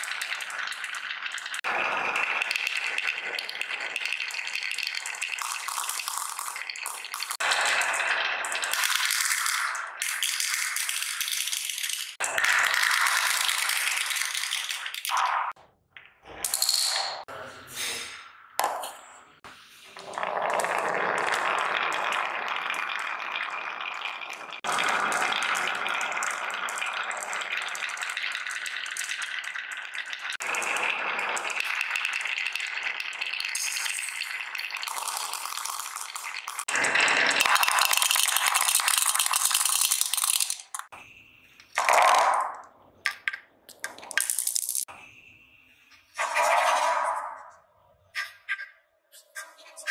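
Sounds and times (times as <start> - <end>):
marbles rattling down wooden tracks: 0.0 - 15.1, 20.0 - 40.9, 41.7 - 44.9
marbles scattering on hard floor: 0.0 - 17.2, 20.0 - 41.0, 41.6 - 44.9.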